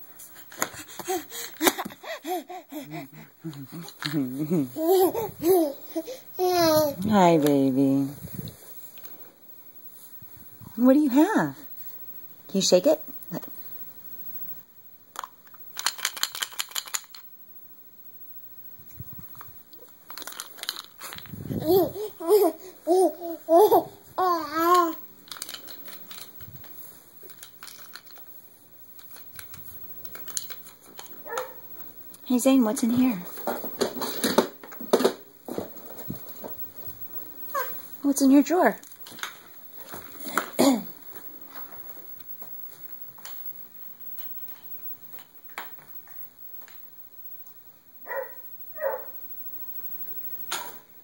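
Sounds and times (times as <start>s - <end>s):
faint room noise: 0.0s - 51.0s
baby whining: 0.7s - 3.3s, 4.8s - 7.0s, 21.6s - 25.0s, 37.5s - 37.8s
small objects clicking and rustling: 3.4s - 4.3s, 15.1s - 17.3s, 19.3s - 21.4s, 24.6s - 31.8s, 33.3s - 37.9s, 38.8s - 46.8s
baby babbling: 4.8s - 7.0s, 21.6s - 25.0s.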